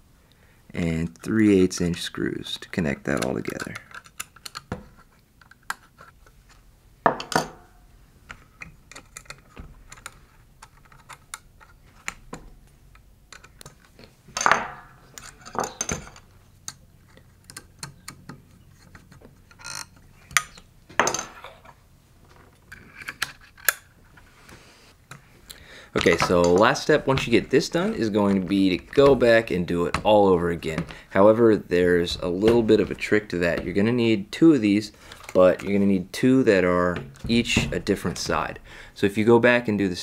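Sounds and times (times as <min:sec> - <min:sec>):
metal parts clicking and clinking: 0:08.3 - 0:12.2, 0:12.9 - 0:18.3, 0:18.9 - 0:21.8
metal parts clattering on table: 0:14.4 - 0:16.3.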